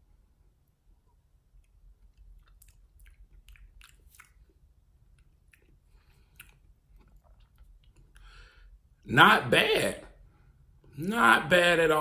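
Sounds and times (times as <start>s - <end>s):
low steady hum: 0.0s - 12.0s
lip smacks: 1.0s - 8.4s.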